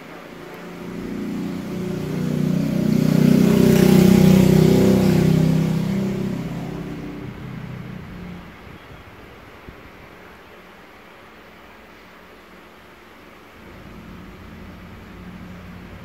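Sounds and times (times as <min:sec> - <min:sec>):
vehicle passing by: 0:00.0 - 0:08.7, 0:13.6 - 0:16.0.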